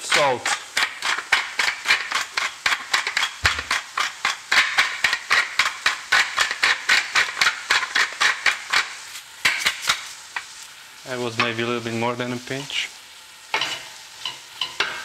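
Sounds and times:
salt grinder grinding: 0.0 - 9.8.

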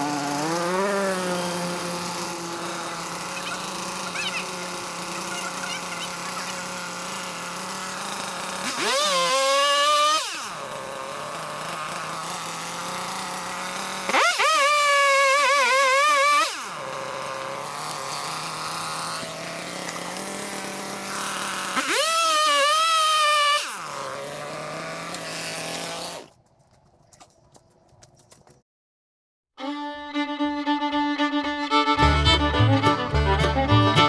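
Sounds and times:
chainsaw idling: 0.0 - 26.4
chainsaw revving: 0.0 - 26.4.

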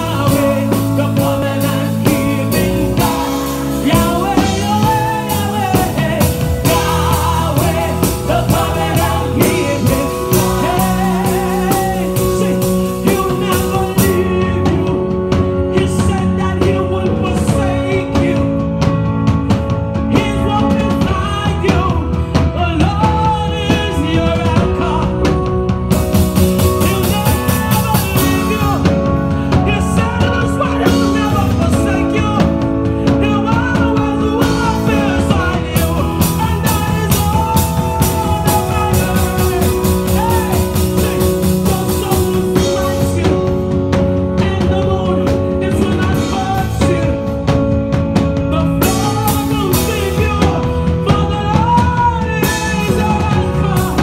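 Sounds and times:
women singing worship song: 0.0 - 13.3
band with drums: 0.0 - 54.0
sustained keyboard chords: 0.0 - 54.0.

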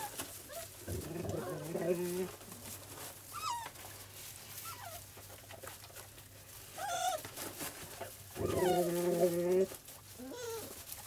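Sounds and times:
soft clicking and rustling: 0.0 - 11.0
puppies whimpering: 8.4 - 10.8.

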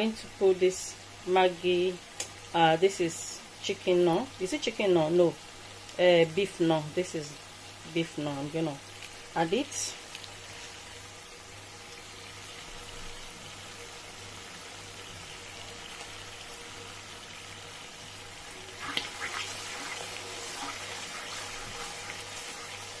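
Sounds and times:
onions sizzling in a frying pan: 0.0 - 23.0.

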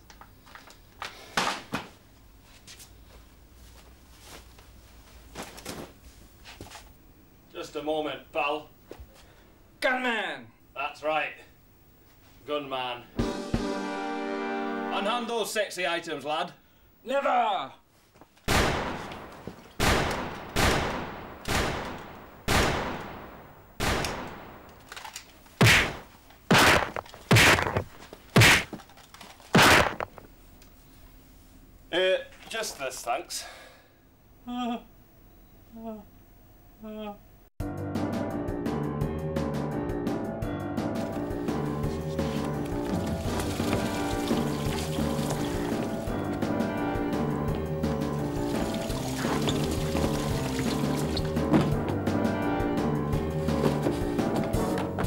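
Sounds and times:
gunshots: 18.5 - 24.6, 25.6 - 27.8, 28.4 - 28.7, 29.5 - 30.1
knocks and thumps: 25.6 - 28.8, 29.5 - 30.3, 49.2 - 52.1.

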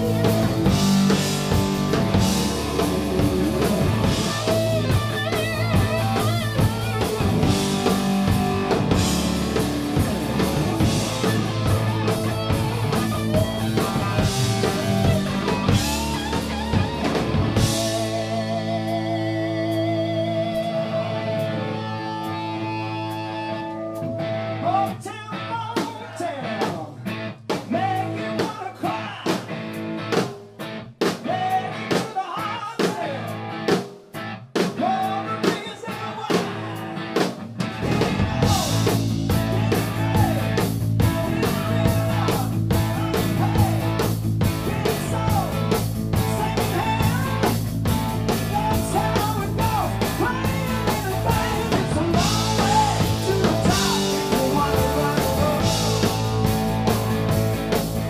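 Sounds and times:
live rock band: 0.0 - 58.0
person singing: 38.0 - 44.0, 44.6 - 47.6, 48.3 - 56.6.

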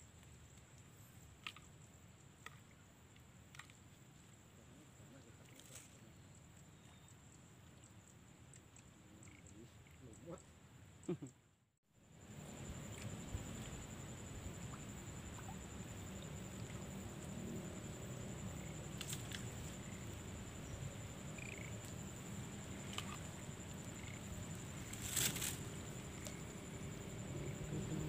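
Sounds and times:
steady low rumble: 12.1 - 28.0.

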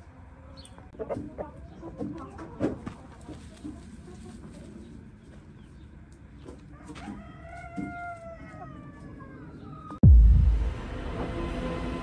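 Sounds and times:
rooster crowing: 6.7 - 9.8.

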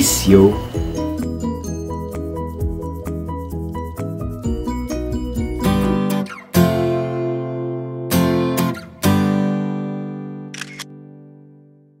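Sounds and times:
acoustic guitar chord ringing: 4.6 - 12.0
camera shutter click effect: 10.5 - 10.9.

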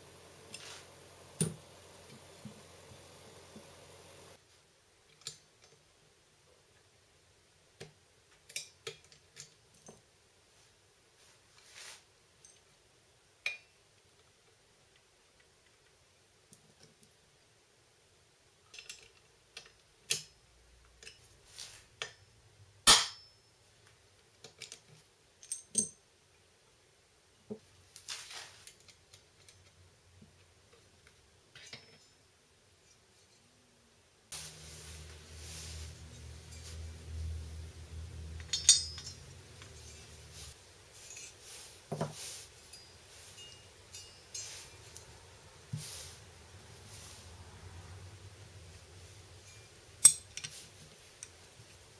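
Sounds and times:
metal engine parts clinking: 38.3 - 40.2, 42.5 - 45.1, 49.4 - 50.6.

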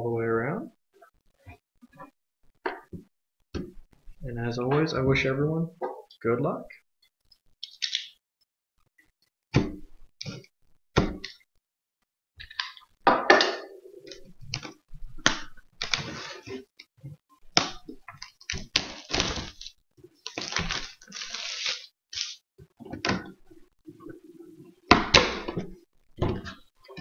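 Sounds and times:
plastic crinkling and ripping: 14.1 - 16.5, 17.6 - 22.4.

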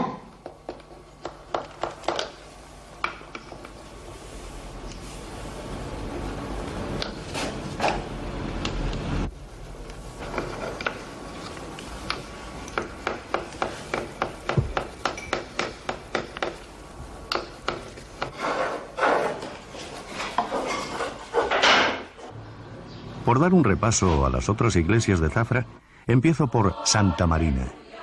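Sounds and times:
hand tool scraping wood: 18.2 - 21.6.

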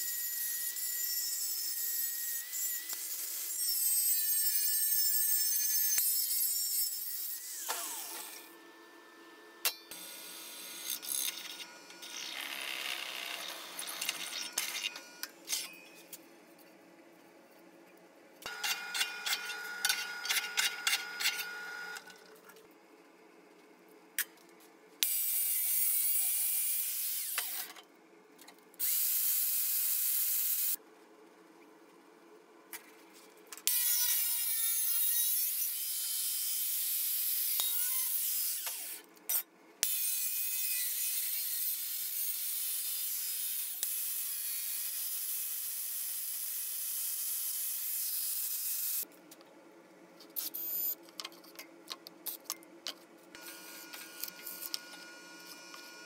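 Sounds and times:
angle grinder cutting steel: 18.5 - 22.0.

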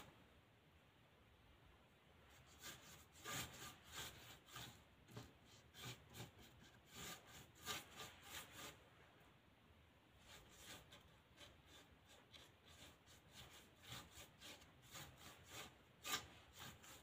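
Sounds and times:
paintbrush scraping on plywood: 2.2 - 9.0, 10.2 - 17.0.

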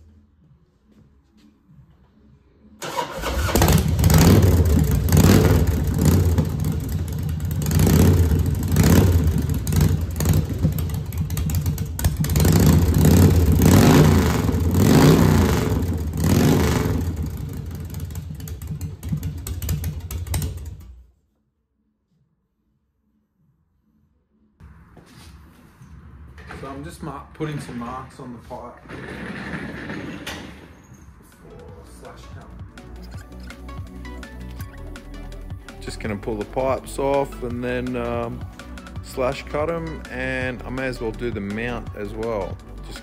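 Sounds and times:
motorcycle engine revving: 2.8 - 21.0.

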